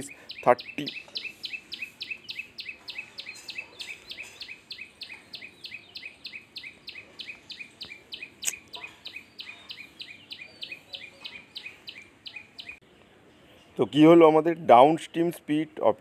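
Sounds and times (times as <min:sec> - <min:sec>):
sharp click: 0:07.8 - 0:08.8.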